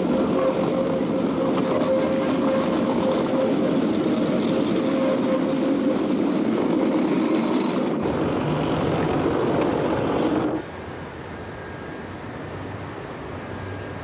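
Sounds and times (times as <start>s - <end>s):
tram wheels rumbling on rails: 0.0s - 14.0s.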